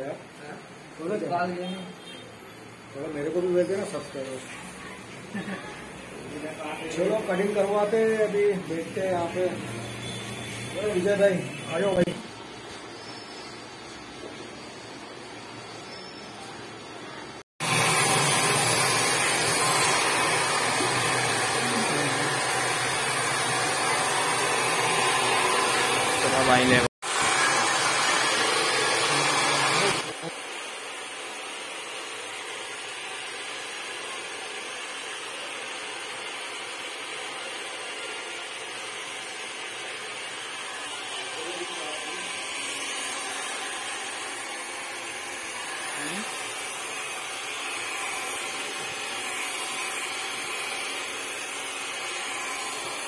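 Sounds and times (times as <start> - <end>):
hair dryer blowing: 5.3 - 12.2, 17.5 - 53.0.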